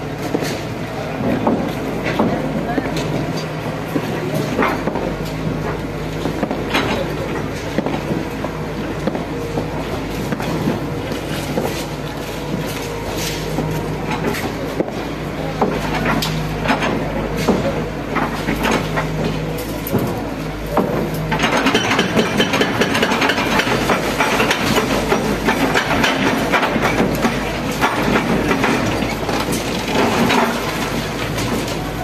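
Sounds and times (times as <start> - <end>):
diesel engine running: 0.0 - 32.0
crumbling brick crashing down: 20.8 - 32.0.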